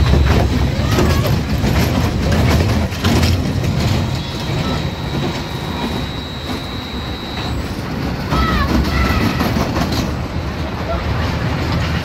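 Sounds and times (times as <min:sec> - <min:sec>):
coaster wheels rumbling on track: 0:00.0 - 0:12.0
thin high-pitched tone: 0:03.8 - 0:07.9.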